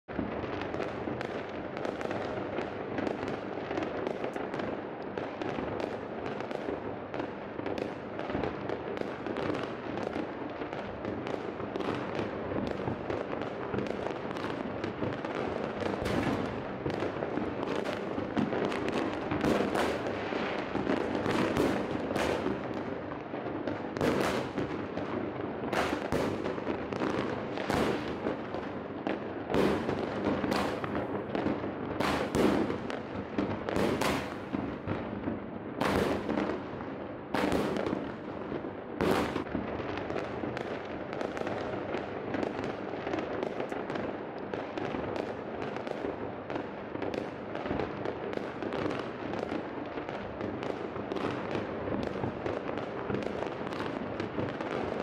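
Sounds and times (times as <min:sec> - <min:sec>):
distant fireworks crackling: 0:00.1 - 0:55.0
firework bangs: 0:00.1 - 0:55.0.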